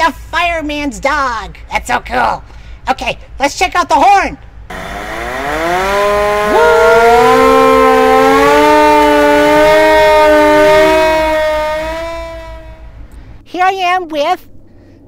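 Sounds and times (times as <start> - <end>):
fire engine siren wailing: 4.7 - 13.0.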